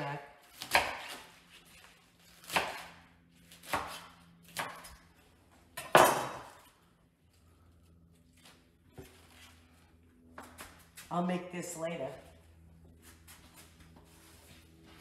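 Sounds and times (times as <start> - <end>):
knife chopping on cutting board: 0.5 - 1.4, 2.4 - 4.9.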